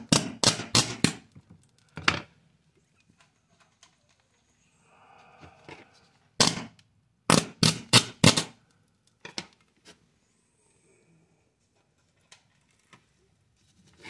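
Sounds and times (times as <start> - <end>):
sharp crackling pops: 0.0 - 2.0, 6.4 - 9.5.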